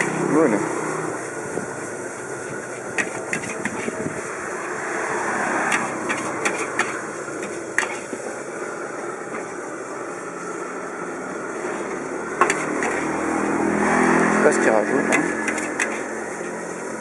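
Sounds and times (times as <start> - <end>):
steady rushing noise: 0.0 - 17.0
metal spatula scraping a wok: 2.2 - 8.3, 11.6 - 14.3, 14.9 - 17.0.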